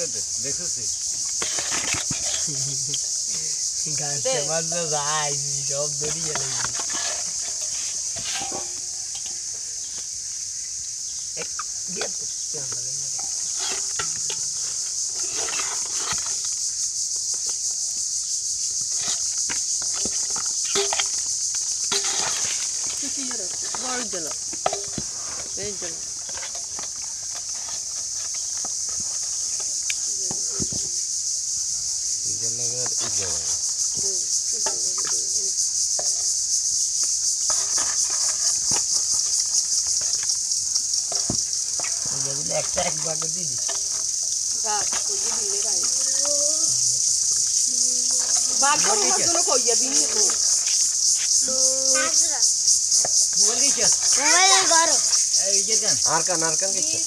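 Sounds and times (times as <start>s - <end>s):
insects chirring: 0.0s - 57.0s
steady high-pitched hiss: 0.0s - 57.0s
steel bowl scraping plastic tub: 1.2s - 2.9s, 6.0s - 9.5s, 13.2s - 16.5s, 18.9s - 29.7s.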